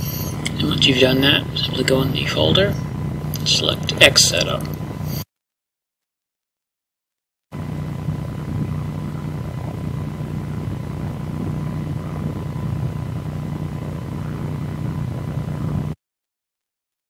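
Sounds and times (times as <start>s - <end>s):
low droning hum: 0.0s - 5.2s, 7.6s - 16.0s.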